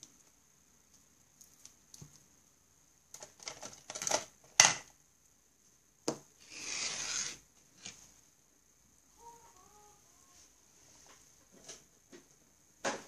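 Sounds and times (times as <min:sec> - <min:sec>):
pens and small objects rattling: 0:03.1 - 0:04.8.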